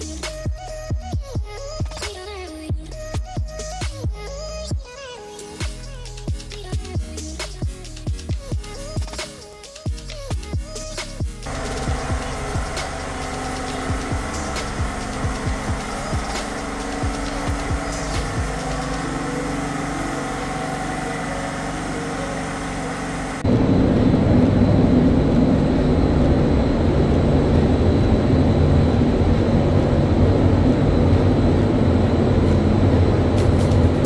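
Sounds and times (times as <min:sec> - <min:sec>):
low mechanical rumble: 0:00.0 - 0:04.7, 0:10.0 - 0:34.0
background music: 0:00.0 - 0:21.4.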